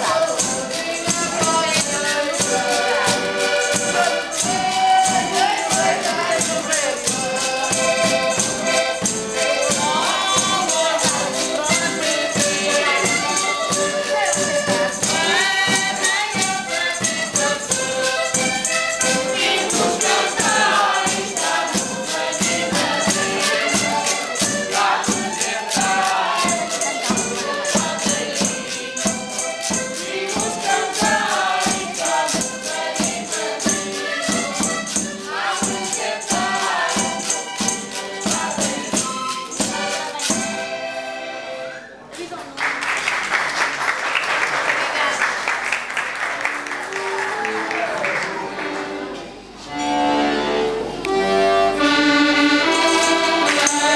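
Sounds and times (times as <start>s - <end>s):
tambourine: 0.0s - 40.9s, 52.6s - 53.9s
folk group singing: 0.0s - 41.8s, 47.8s - 53.9s.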